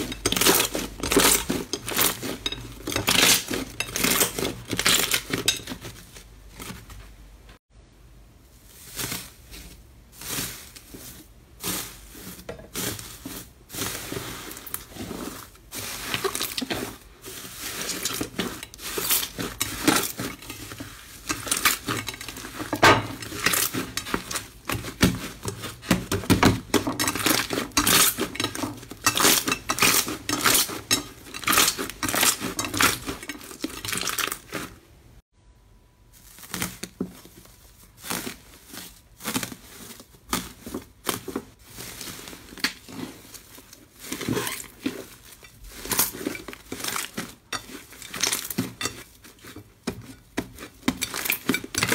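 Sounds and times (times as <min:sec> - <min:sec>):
foil crinkling: 0:00.0 - 0:07.1, 0:08.5 - 0:34.8, 0:36.1 - 0:51.9
slime crackling and popping: 0:36.2 - 0:51.9.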